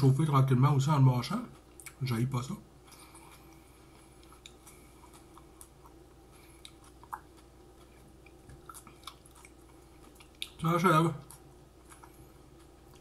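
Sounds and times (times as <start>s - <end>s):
mouth clicks of chewing: 1.5s - 2.0s, 2.9s - 10.6s.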